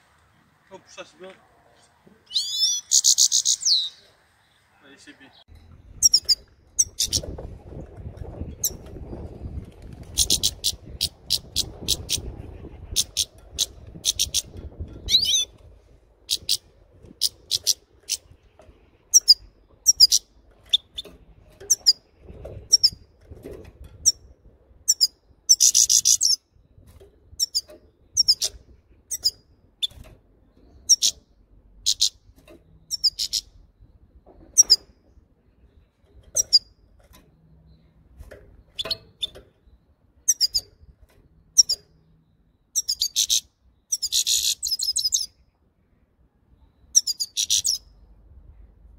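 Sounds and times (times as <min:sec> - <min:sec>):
goldfinch chir calls: 0:02.3 - 0:04.0, 0:06.0 - 0:07.4, 0:10.2 - 0:15.6, 0:19.1 - 0:21.0, 0:27.4 - 0:30.0, 0:30.7 - 0:31.2, 0:32.9 - 0:33.5, 0:41.6 - 0:41.9, 0:42.8 - 0:45.3, 0:46.9 - 0:47.8
bird twittering: 0:02.3 - 0:04.1, 0:06.0 - 0:07.4, 0:10.1 - 0:15.6, 0:16.3 - 0:18.3, 0:19.1 - 0:21.1, 0:27.4 - 0:30.0, 0:30.7 - 0:32.2, 0:32.8 - 0:33.6, 0:38.7 - 0:40.8, 0:41.5 - 0:42.0, 0:42.7 - 0:45.4, 0:46.8 - 0:48.0.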